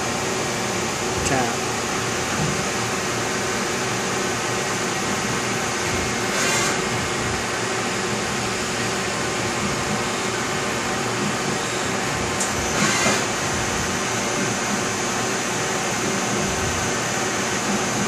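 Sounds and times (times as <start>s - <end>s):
drill boring metal: 12.6s - 13.4s.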